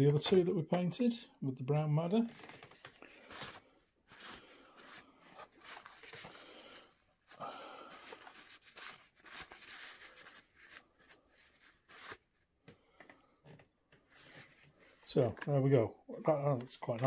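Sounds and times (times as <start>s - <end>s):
tissue paper rustling: 2.3s - 6.5s, 7.3s - 12.3s.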